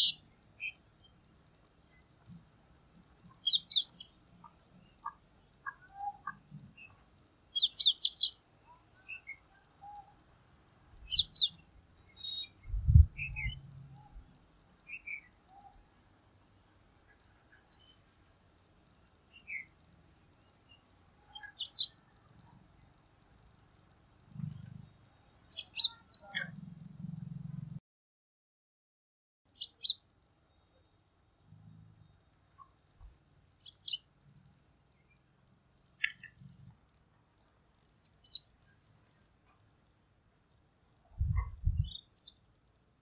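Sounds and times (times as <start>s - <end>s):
soft bird chirps: 0.0s - 1.2s, 3.3s - 23.5s, 25.5s - 26.5s, 29.5s - 30.0s, 31.7s - 43.0s
bird trilling calls: 3.4s - 4.1s, 36.8s - 39.8s, 41.0s - 42.6s.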